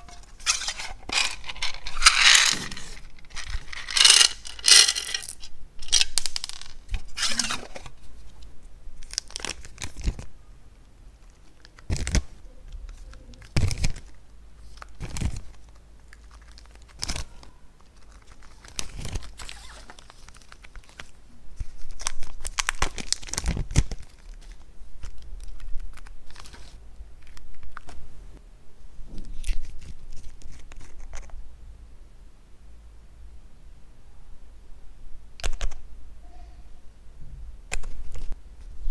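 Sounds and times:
crinkling and tearing: 11.2s - 28.0s.

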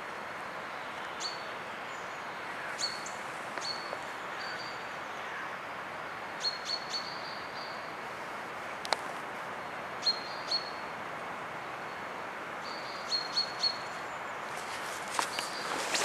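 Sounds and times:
steady forest hiss: 0.0s - 16.0s
footsteps on forest litter: 14.5s - 16.0s.

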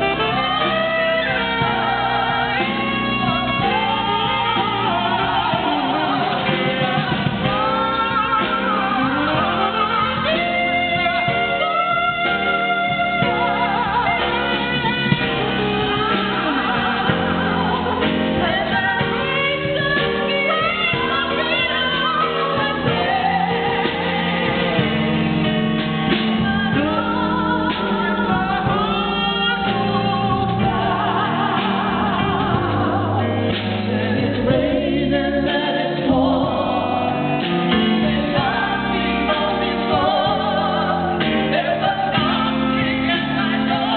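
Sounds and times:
band playing: 0.0s - 43.9s.

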